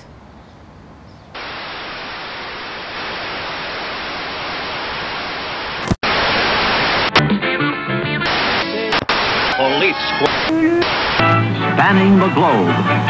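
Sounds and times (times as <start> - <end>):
television static hiss: 1.3 - 7.2, 8.2 - 11.4.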